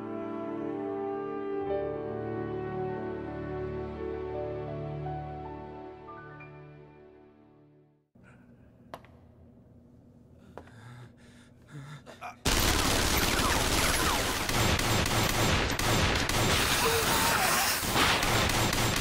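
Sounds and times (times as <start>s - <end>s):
background music: 0.0s - 8.0s
quiet anime soundtrack: 0.0s - 19.0s
sustained gunfire: 12.5s - 19.0s.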